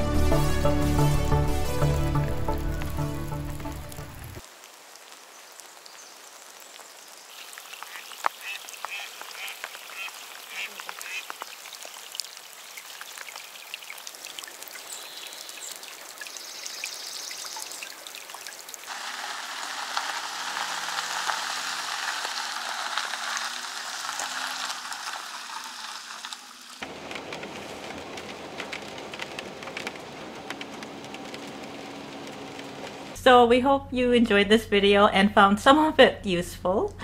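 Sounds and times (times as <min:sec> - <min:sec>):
campervan driving by on wet road: 0:00.0 - 0:04.4, 0:18.9 - 0:33.2
rain falling on a lake: 0:00.0 - 0:33.2
road and rain noise inside van: 0:01.6 - 0:16.4, 0:18.4 - 0:33.2.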